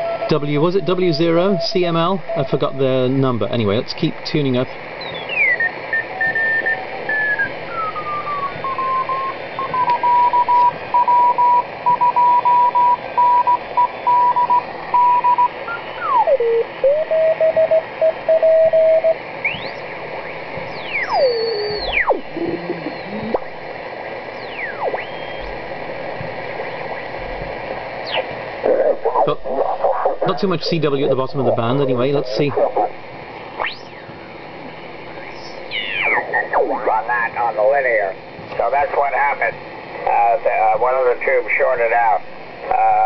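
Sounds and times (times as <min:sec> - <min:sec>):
morse code tone: 0:00.0 - 0:03.4, 0:05.2 - 0:19.8
radio band hiss: 0:00.0 - 0:17.0, 0:17.8 - 0:43.0
sliding beat-note whistles: 0:20.7 - 0:22.2, 0:24.4 - 0:25.5.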